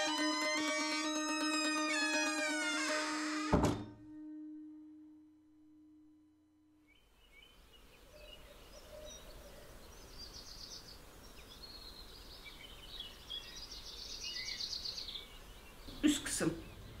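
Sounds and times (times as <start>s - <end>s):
small birds chirping and trilling: 6.9s - 17.0s.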